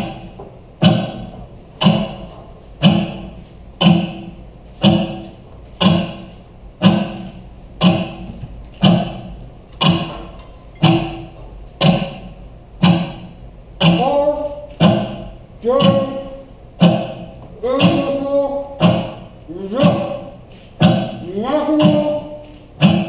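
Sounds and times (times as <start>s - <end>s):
low drum-like strikes: 14.8s - 22.2s.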